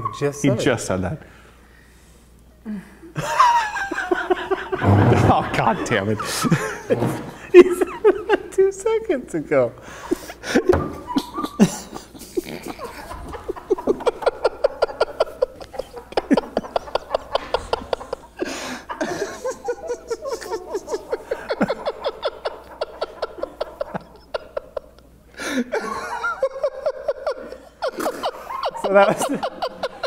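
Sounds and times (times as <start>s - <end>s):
men laughing: 3.1s - 8.7s, 10.0s - 30.0s.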